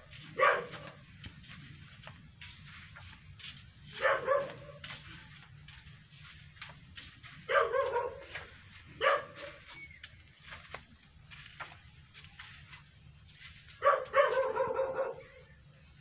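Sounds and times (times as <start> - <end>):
dog barking: 0.2 - 1.1, 3.9 - 5.1, 7.4 - 9.7, 13.8 - 15.4.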